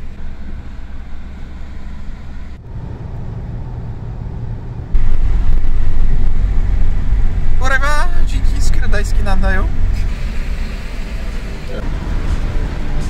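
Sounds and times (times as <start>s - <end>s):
car road and engine rumble: 0.0s - 13.0s.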